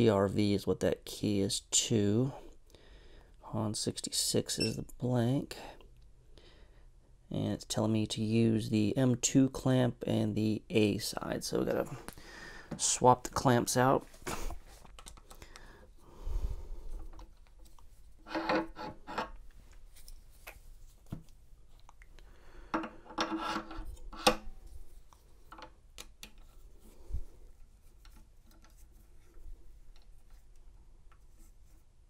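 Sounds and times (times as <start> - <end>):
metal scraping and clinking: 18.2 - 19.4.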